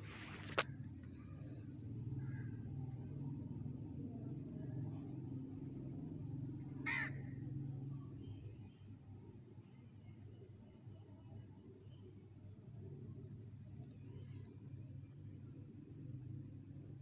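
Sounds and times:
low background rumble: 0.0 - 9.5
bird harsh call: 6.8 - 7.2.

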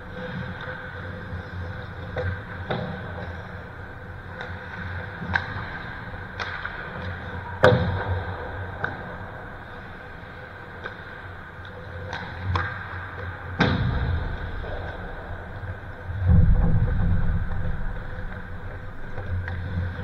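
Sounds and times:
hockey puck and stick knocks: 2.1 - 3.4, 6.4 - 9.0, 12.0 - 15.3.

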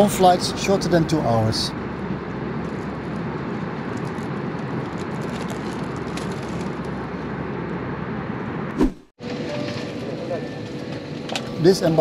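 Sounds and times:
airliner cabin noise: 0.0 - 12.0
plastic wrapper rustling: 4.8 - 6.9.

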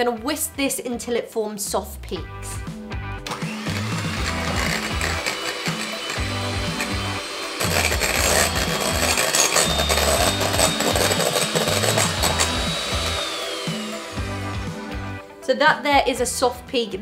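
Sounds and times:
background music with beat: 2.2 - 16.3
electric mixer whisking: 3.2 - 15.3.

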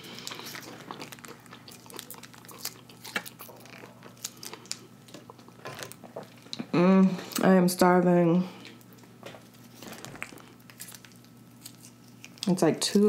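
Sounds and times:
paper wrapper crinkling: 9.5 - 12.5.

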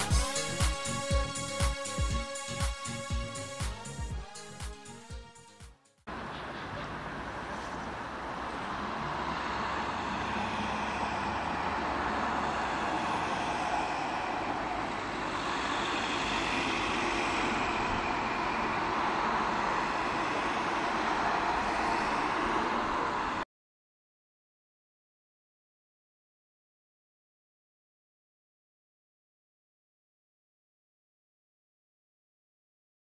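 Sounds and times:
road traffic noise: 0.0 - 5.0, 6.1 - 23.5.

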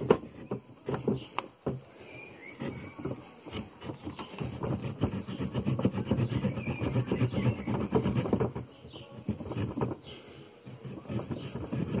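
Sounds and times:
saw rasping through branch: 2.4 - 12.0.

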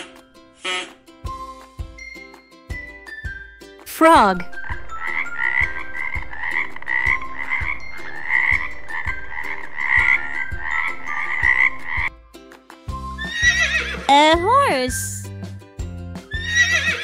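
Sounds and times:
frog croaking: 5.0 - 12.1.

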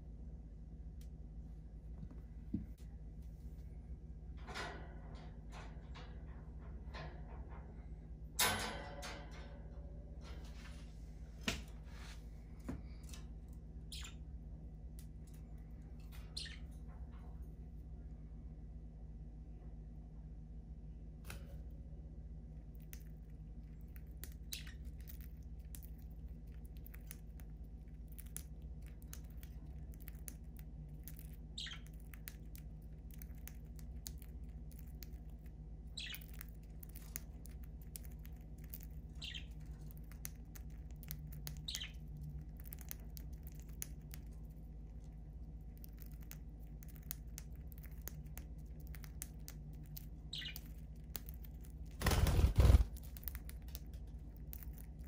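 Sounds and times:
low steady hum: 0.0 - 55.0
short high bird chirps: 13.9 - 14.2
birds cracking seed clicks: 23.9 - 44.3, 45.8 - 55.0.

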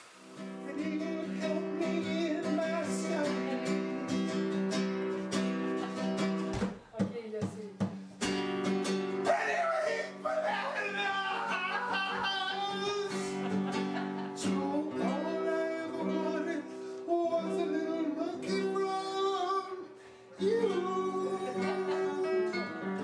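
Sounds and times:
guitar accompaniment: 0.0 - 23.0
man singing: 0.6 - 4.1, 9.2 - 13.6, 14.4 - 23.0.

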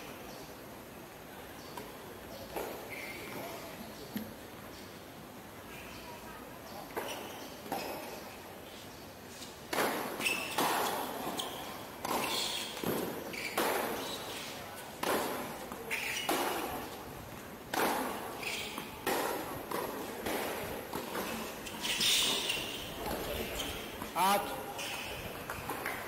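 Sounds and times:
tennis ball bouncing: 9.7 - 14.2, 17.7 - 24.1.

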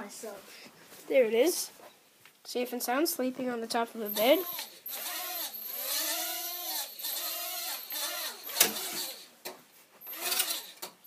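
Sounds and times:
toy drone motors whining: 4.1 - 9.3, 10.0 - 10.9.

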